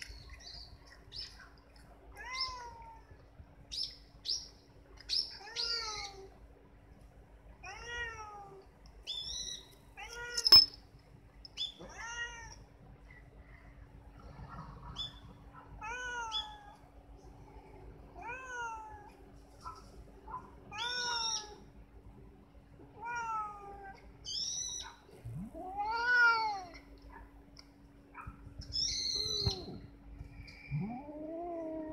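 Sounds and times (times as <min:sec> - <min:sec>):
cat meowing: 0:23.0 - 0:24.0, 0:25.5 - 0:26.8.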